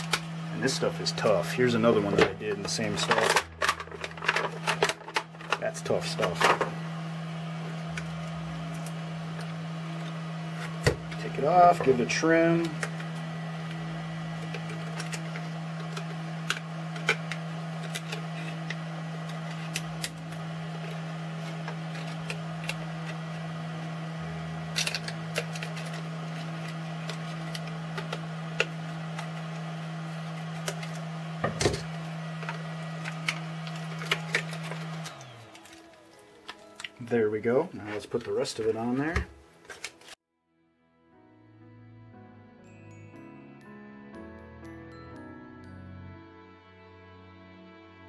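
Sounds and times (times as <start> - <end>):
small motor humming: 6.2 - 36.7
scissors snipping plastic wrap: 14.4 - 23.2, 24.7 - 29.4, 30.4 - 31.0, 31.6 - 37.0.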